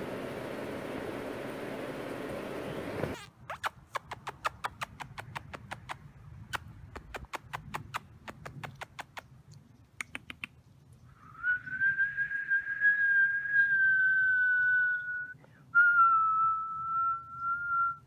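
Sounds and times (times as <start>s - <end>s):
high whistle-like tone: 11.2s - 18.0s.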